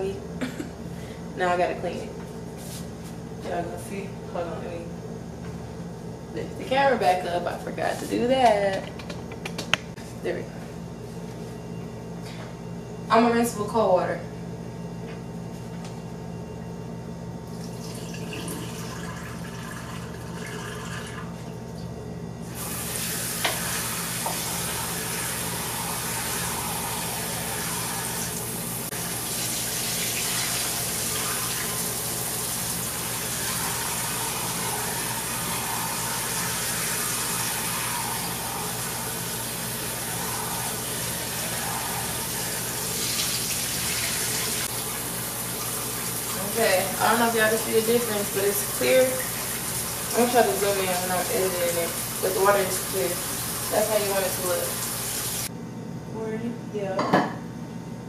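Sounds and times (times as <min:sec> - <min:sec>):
faucet running water into rice: 0:17.6 - 0:21.2, 0:22.6 - 0:55.5.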